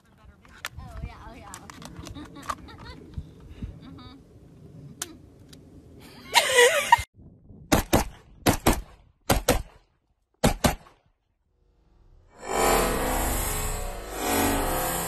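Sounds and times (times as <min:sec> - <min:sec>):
rifle firing in quick pairs: 0:07.7 - 0:09.8, 0:10.4 - 0:11.0.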